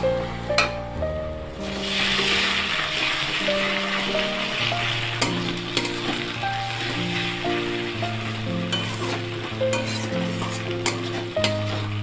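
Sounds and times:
background music: 0.0 - 12.0
onions sizzling in oil: 1.5 - 12.0.

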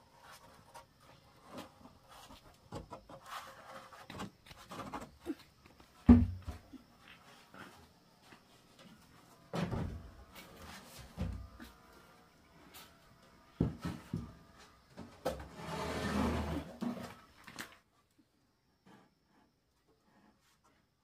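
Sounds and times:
knocks and bumps of roofing sheet: 6.0 - 6.7.

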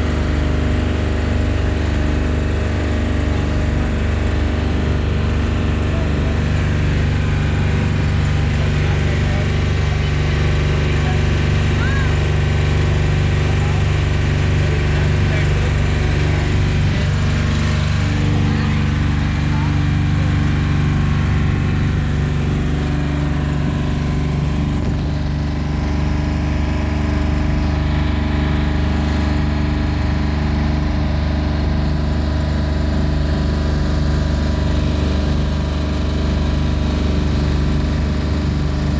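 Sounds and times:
boat engine running: 0.0 - 38.9.

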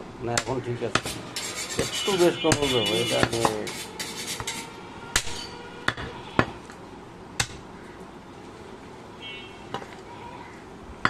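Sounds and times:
cleaver chopping meat on wood: 0.4 - 1.2, 2.5 - 3.7.

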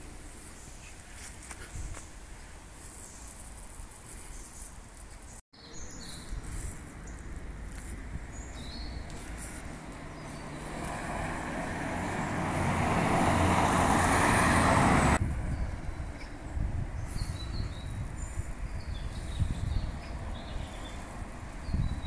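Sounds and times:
low traffic rumble: 5.9 - 22.0
passing vehicle: 8.8 - 16.9.

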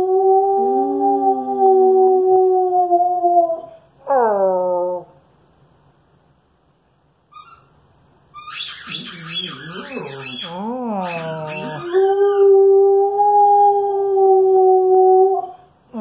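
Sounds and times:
squeaky toy squeaks: 7.3 - 12.4
dog howling: 9.4 - 15.6.

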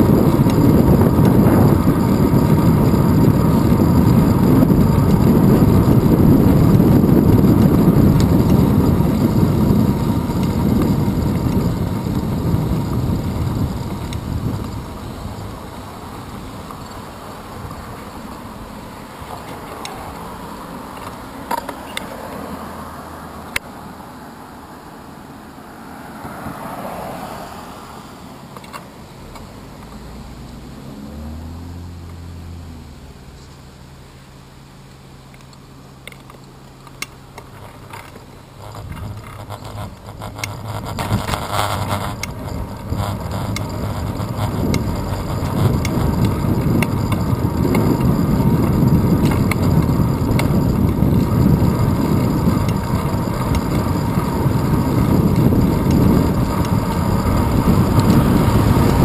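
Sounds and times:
wind on camera: 0.0 - 20.4, 38.6 - 59.0
car passing: 0.0 - 33.4, 40.2 - 59.0
bicycle road rumble: 0.0 - 59.0
street noise: 0.0 - 59.0.

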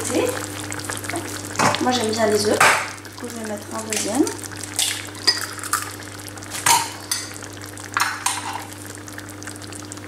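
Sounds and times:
sauce simmering and sizzling: 0.0 - 10.0
egg cracking open: 4.6 - 6.9.

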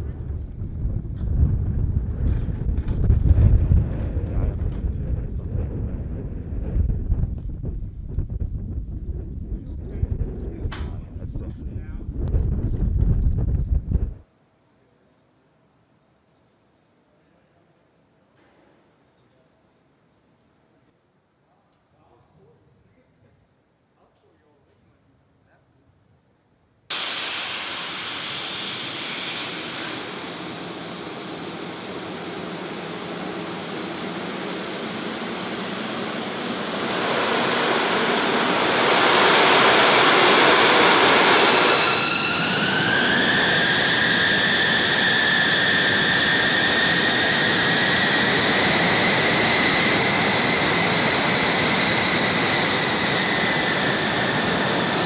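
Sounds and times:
jet engines running: 0.0 - 14.2, 26.9 - 55.0.

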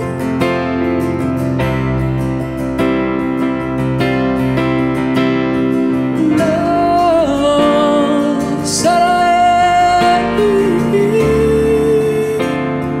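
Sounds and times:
strummed acoustic guitar: 0.0 - 13.0
person singing long notes: 6.2 - 13.0.

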